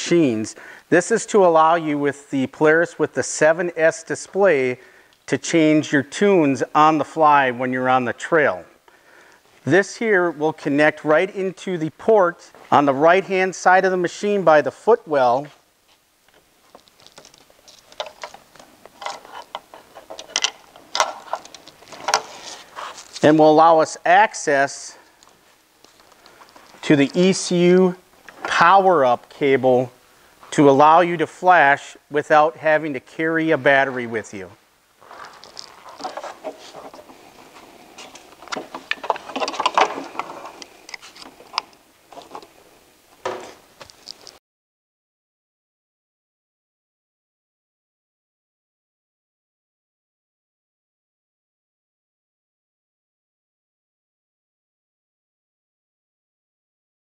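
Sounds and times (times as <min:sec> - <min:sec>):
plastic connectors clicking: 0:16.8 - 0:22.2.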